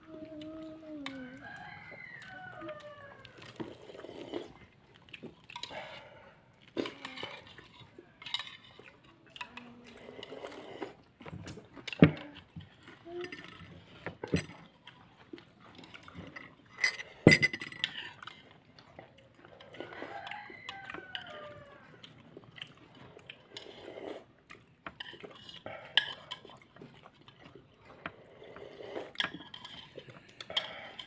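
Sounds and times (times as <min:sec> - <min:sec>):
dishes and cutlery clatter: 0:06.8 - 0:09.7, 0:11.3 - 0:14.7, 0:15.8 - 0:18.5, 0:24.8 - 0:27.0, 0:29.1 - 0:31.0.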